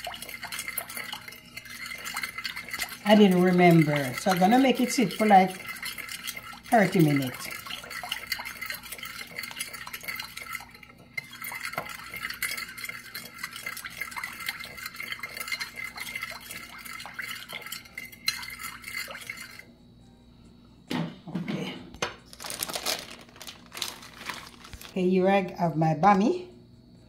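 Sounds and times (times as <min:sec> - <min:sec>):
spoon clinking and scraping dish: 0:00.0 - 0:19.6.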